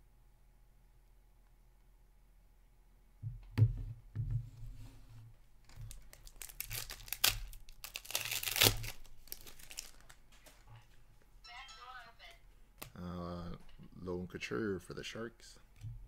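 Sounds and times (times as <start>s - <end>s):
foil wrapper tearing and crinkling: 5.8s - 10.2s.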